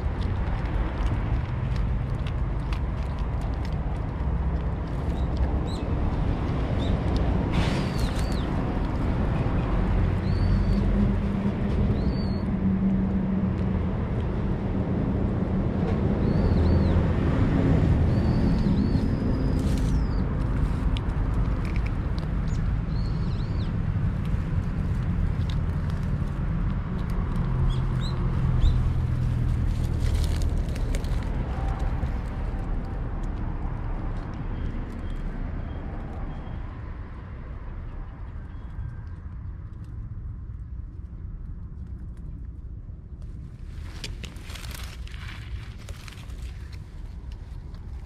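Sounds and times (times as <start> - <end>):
city traffic rumble: 0.0 - 48.0
bird chirps: 11.9 - 12.5.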